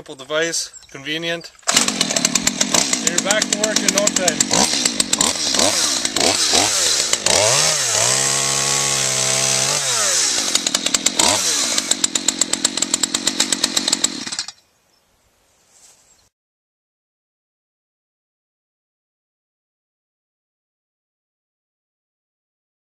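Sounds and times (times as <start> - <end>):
chainsaw cutting a log: 1.7 - 14.6.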